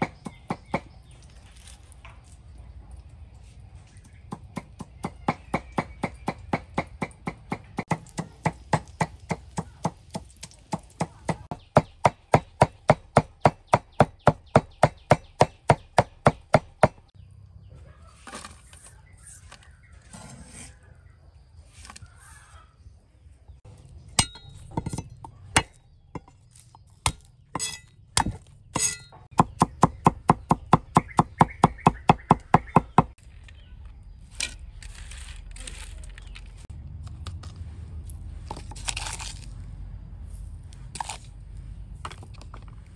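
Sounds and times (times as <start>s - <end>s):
knife chopping on wooden block: 24.2s - 33.2s.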